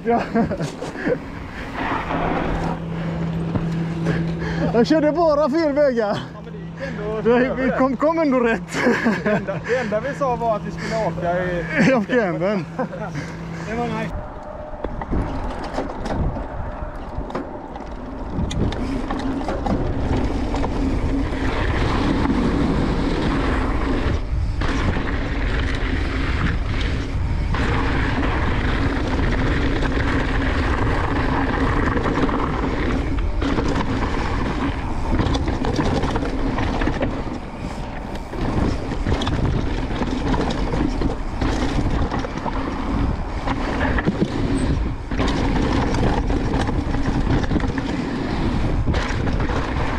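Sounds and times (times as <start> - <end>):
bike rattles and knocks: 0.0 - 6.4, 14.7 - 49.9
rolling tyre noise: 0.0 - 49.9
wind on microphone: 14.1 - 49.9.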